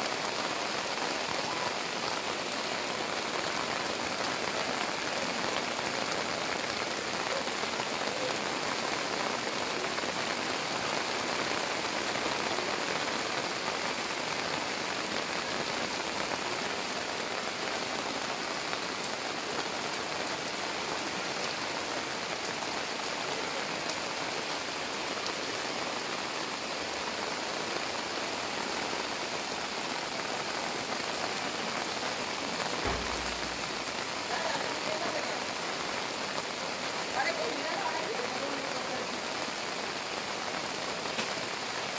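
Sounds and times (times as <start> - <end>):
heavy rain on flooded street: 0.0 - 41.9
low thud: 32.8 - 34.0.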